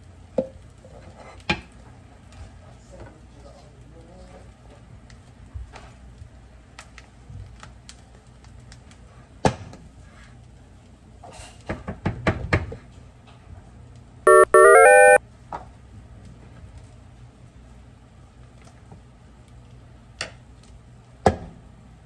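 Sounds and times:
electronic jingle: 14.3s - 15.2s.

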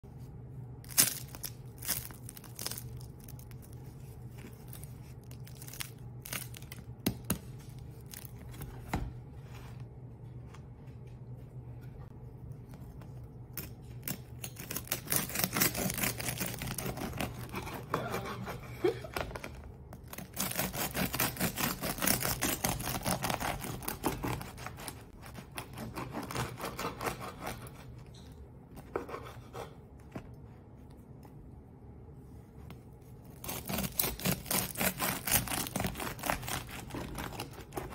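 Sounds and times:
bread crust crackling: 0.7s - 8.8s, 13.2s - 17.9s, 19.3s - 28.0s, 33.3s - 37.9s
knife sawing through crust: 14.5s - 19.0s, 20.1s - 27.9s, 33.4s - 37.9s.

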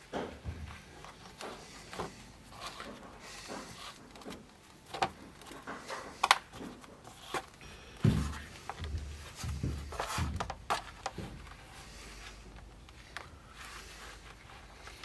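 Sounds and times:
dull thumps: 8.0s - 11.6s.

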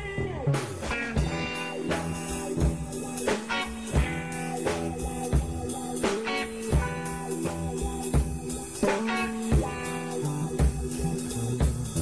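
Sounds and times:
drum kit: 0.0s - 12.0s
rock guitar playing: 0.0s - 12.0s.

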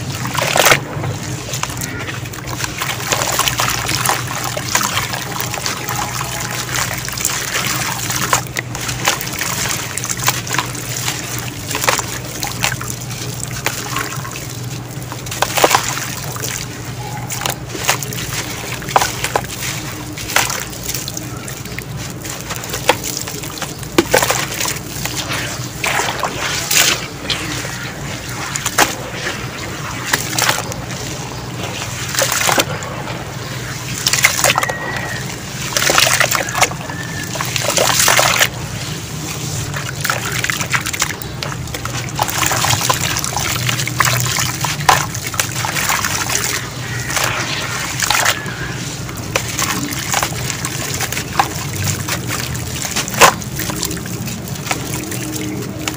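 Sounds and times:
water sloshing and splashing: 0.0s - 55.9s
gritty crumbling of cement lumps: 39.9s - 55.9s.

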